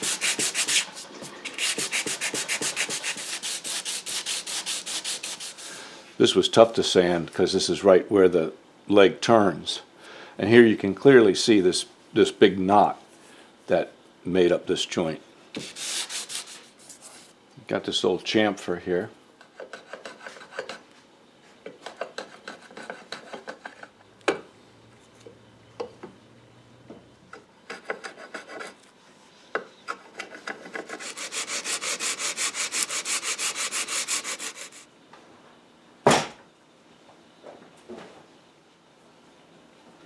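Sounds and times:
hand sanding wood: 0:00.0 - 0:05.8, 0:15.6 - 0:17.3, 0:27.7 - 0:28.8, 0:30.3 - 0:34.9.

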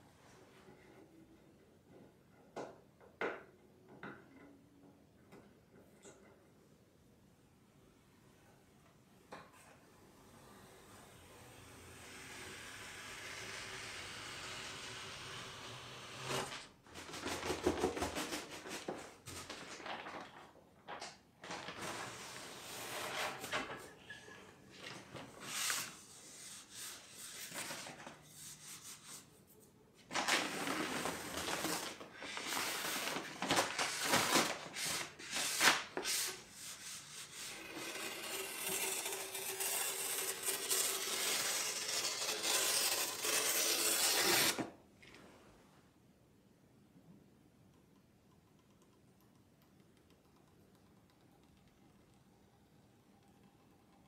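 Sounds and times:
paper tape crinkling: 0:30.1 - 0:36.3
squeegee rubbing tape: 0:33.9 - 0:44.6.

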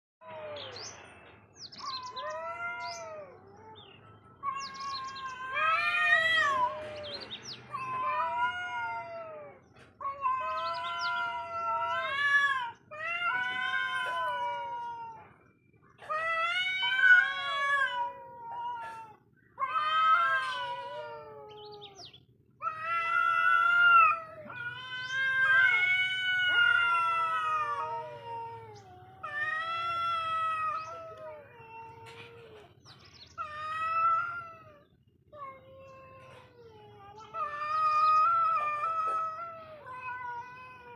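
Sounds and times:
cats yowling: 0:00.2 - 0:00.8, 0:01.8 - 0:40.9.

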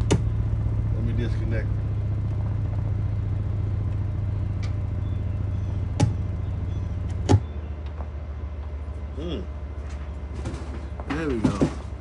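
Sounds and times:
low bass test tone: 0:00.0 - 0:10.4.

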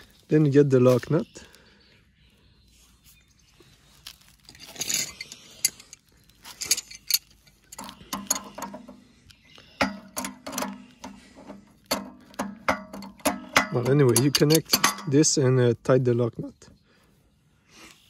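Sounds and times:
pliers clicking on metal nut: 0:11.9 - 0:15.1.

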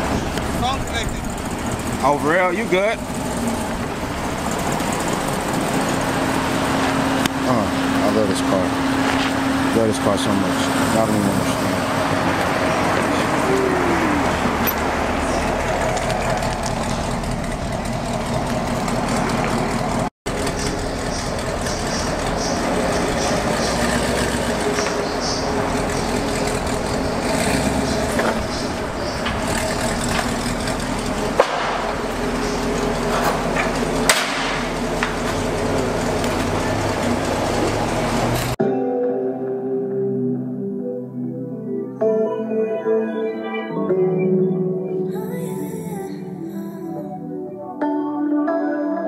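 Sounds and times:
car engine idling: 0:00.0 - 0:38.6
sharp knocks: 0:31.4 - 0:35.4.

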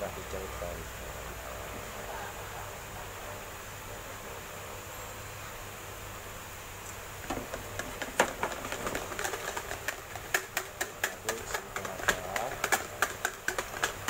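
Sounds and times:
whisk beating batter: 0:07.3 - 0:14.0.

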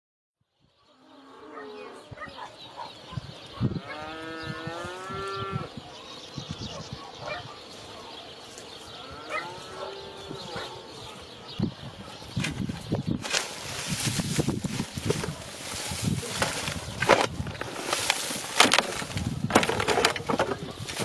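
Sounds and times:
farm animal calling: 0:00.8 - 0:12.4.

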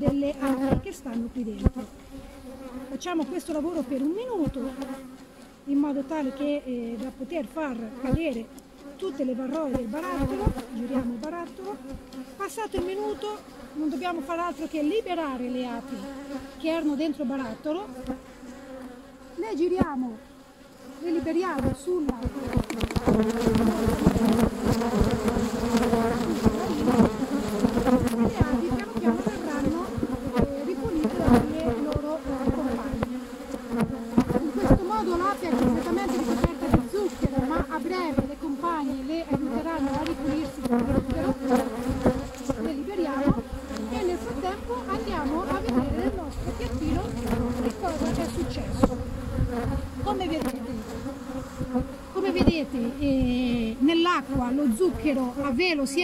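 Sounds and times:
bees buzzing: 0:00.0 - 0:56.0
small ticks and knocks: 0:11.2 - 0:12.9, 0:21.6 - 0:26.0
sharp tap: 0:22.2 - 0:23.1.

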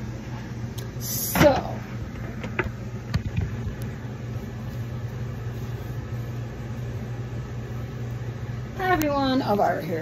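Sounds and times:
low mechanical hum: 0:00.0 - 0:10.0.

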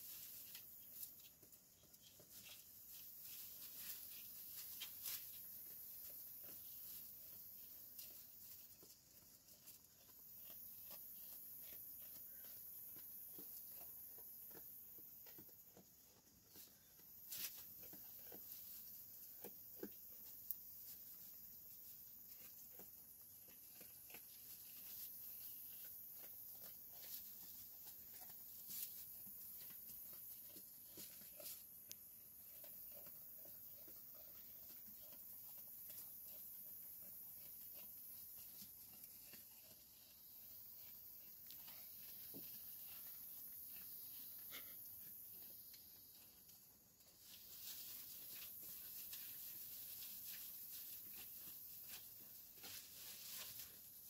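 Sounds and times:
sheep rustling hay: 0:00.0 - 0:08.9, 0:24.3 - 0:31.6, 0:47.1 - 0:54.0
sheep pulling hay and chewing: 0:00.0 - 0:54.0.

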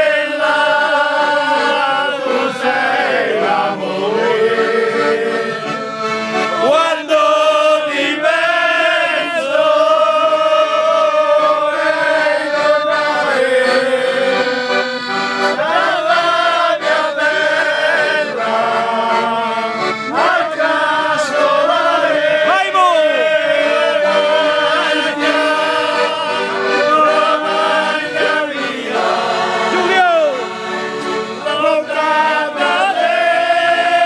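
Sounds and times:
piano accordion playing: 0:00.0 - 0:34.0
man singing loudly: 0:06.6 - 0:14.5, 0:22.4 - 0:28.3, 0:28.9 - 0:30.6.

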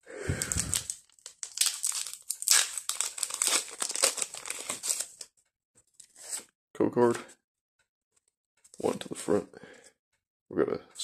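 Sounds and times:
foil wrapper crinkling: 0:00.3 - 0:05.3.

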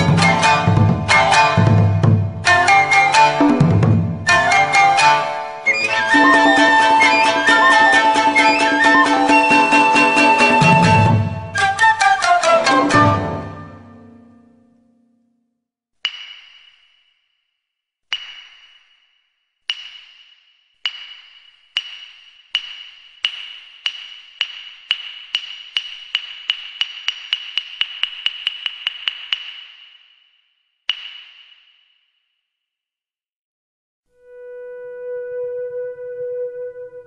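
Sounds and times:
wood block strikes: 0:16.0 - 0:17.5, 0:18.1 - 0:32.2.

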